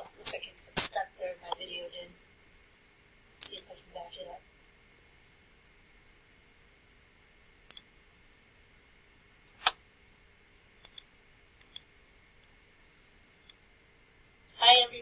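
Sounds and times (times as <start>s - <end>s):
computer mouse clicking: 7.7s - 7.9s, 10.8s - 11.9s.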